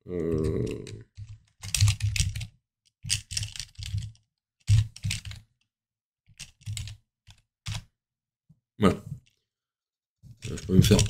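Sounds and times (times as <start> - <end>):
computer keyboard typing: 0.1 - 5.5, 6.3 - 7.9.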